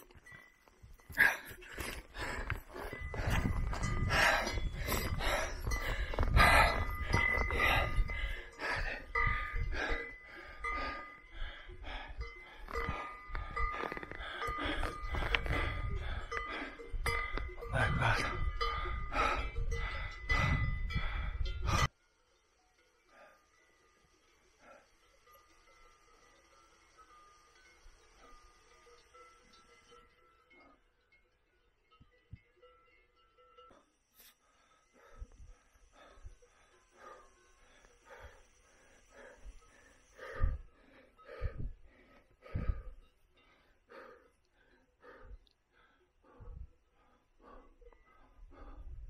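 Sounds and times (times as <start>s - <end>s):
faint bells ringing: 0.0s - 49.0s
person breathing hard: 1.0s - 22.0s, 23.0s - 23.7s, 24.4s - 25.5s, 33.7s - 49.0s.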